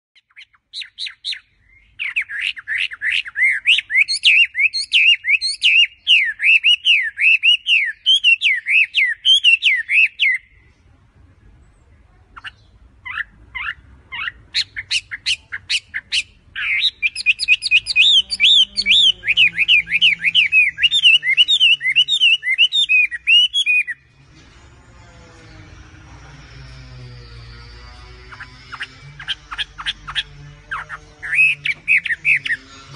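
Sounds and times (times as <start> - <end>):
bird singing whistled phrases: 0.2 - 10.6, 12.4 - 24.0.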